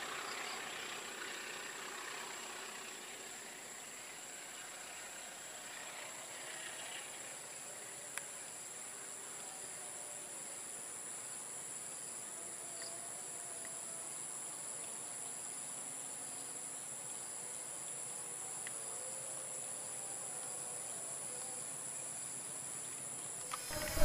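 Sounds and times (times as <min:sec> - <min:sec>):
faint hiss: 0:00.0 - 0:24.0
insects shrilling: 0:23.5 - 0:24.0.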